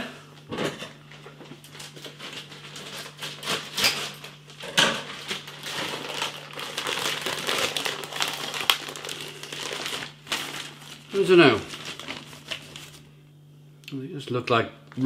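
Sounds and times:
plastic bag crinkling: 1.6 - 13.1.

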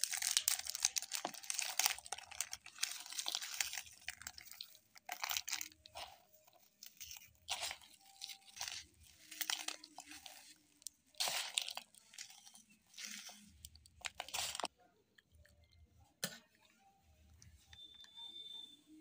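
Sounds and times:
biscuits crunching: 0.0 - 14.7
plastic wrappers crinkling: 0.0 - 14.7.

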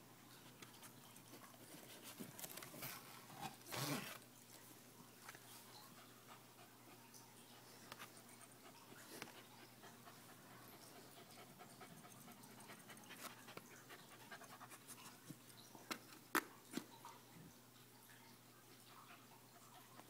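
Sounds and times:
dog panting faintly: 5.7 - 15.3.

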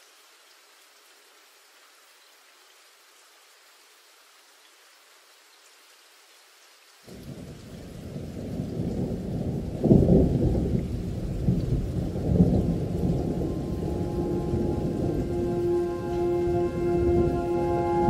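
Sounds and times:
low rolling thunder: 7.1 - 18.0.

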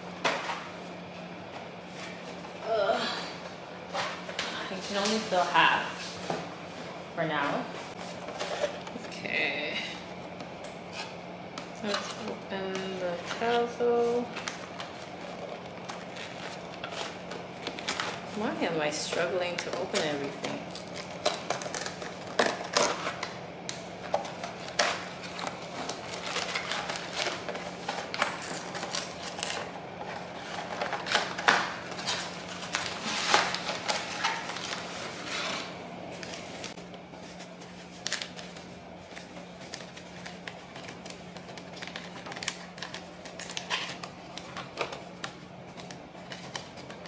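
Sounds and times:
paper rustling and crinkling: 11.8 - 23.4, 24.0 - 47.0.

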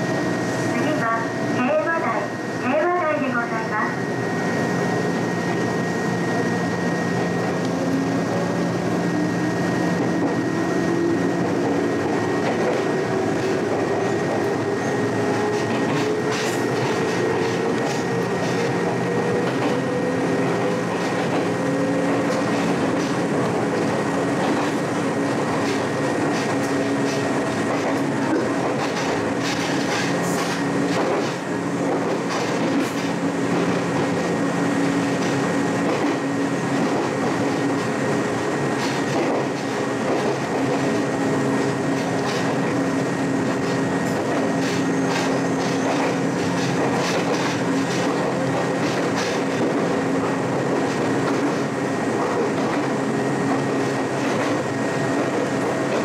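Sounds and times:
electric train motor whine: 3.9 - 31.9
wheels clicking over rail joints: 25.6 - 34.1.

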